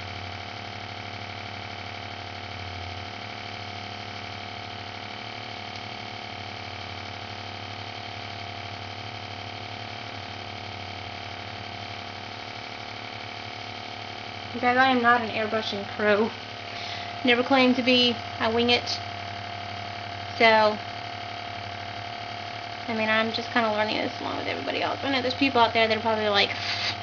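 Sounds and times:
airbrush compressor humming: 0.0 - 27.0.

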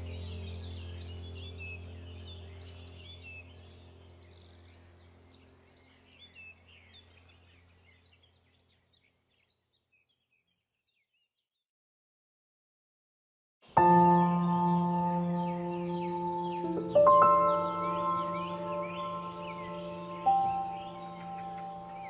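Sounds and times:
low steady drone: 0.0 - 7.8, 13.8 - 22.0
small birds chirping: 0.0 - 11.6, 13.7 - 22.0.

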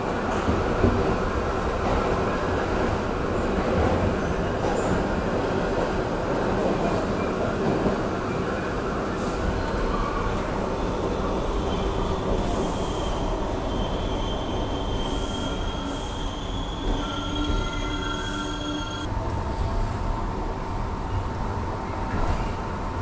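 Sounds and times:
train wheels rumbling on rail: 0.0 - 23.0
high wheel squeal: 12.6 - 19.1.

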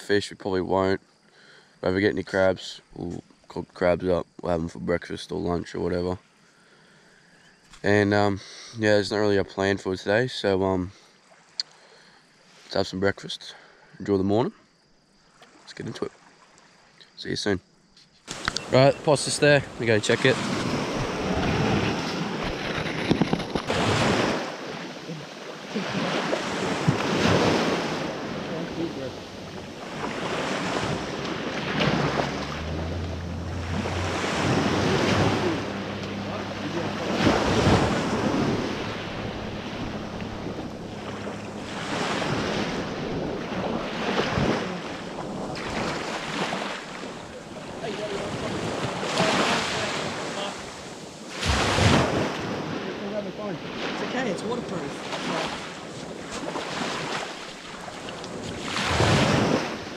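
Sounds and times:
waves washing up on sand: 18.3 - 59.9
wind on microphone: 19.6 - 25.2, 25.8 - 53.0.

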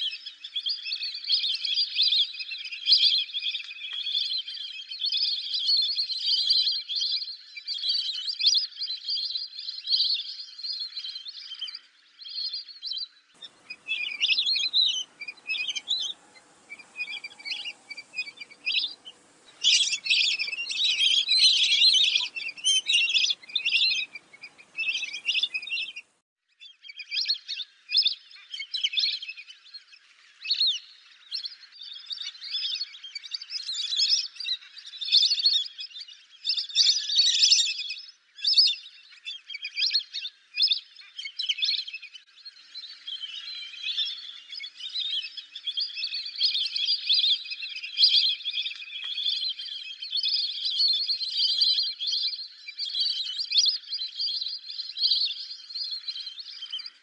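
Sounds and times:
ducks whistling: 13.4 - 26.1
faint hiss: 13.4 - 26.1.

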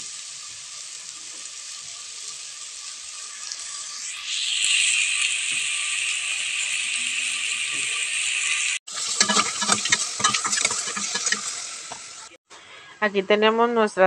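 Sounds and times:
mushrooms sizzling in butter: 0.0 - 12.4
utensil scraping against pot: 7.8 - 12.3.

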